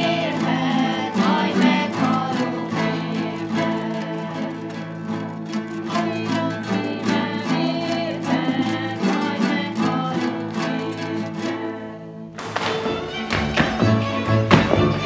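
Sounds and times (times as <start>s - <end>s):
women singing folk song: 0.0s - 12.3s
plucked lutes: 0.0s - 15.0s
different music: 12.4s - 15.0s.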